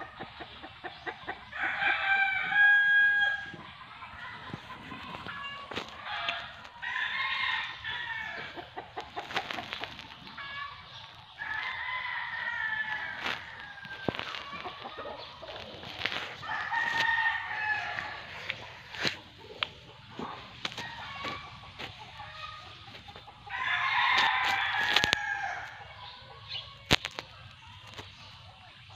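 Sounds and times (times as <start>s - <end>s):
rooster crowing: 1.6s - 3.5s, 16.4s - 19.1s, 23.5s - 25.7s.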